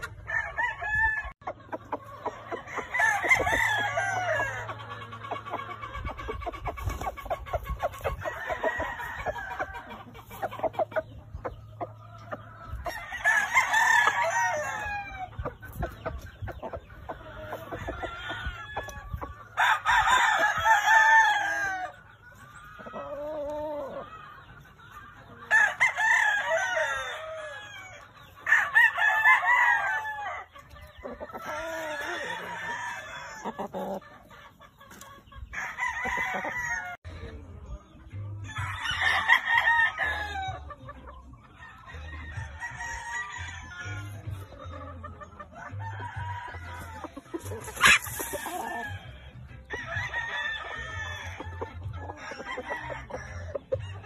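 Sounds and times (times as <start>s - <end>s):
roosters crowing: 0.0s - 37.1s, 38.4s - 54.0s
chickens clucking: 0.0s - 54.0s.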